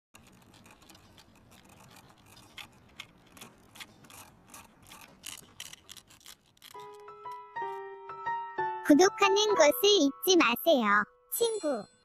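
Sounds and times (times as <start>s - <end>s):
needle scraping sugar candy: 0.2s - 7.1s.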